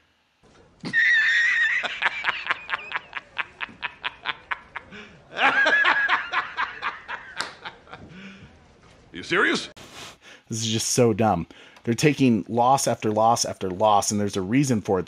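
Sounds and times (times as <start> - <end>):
shrill laughter: 0.8 - 8.2.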